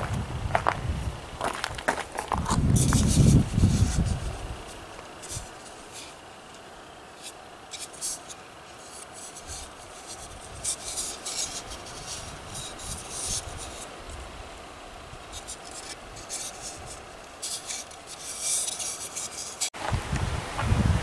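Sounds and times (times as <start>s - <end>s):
plastic part rubbing in hands: 2.3s - 4.3s, 7.2s - 13.9s, 15.4s - 19.7s.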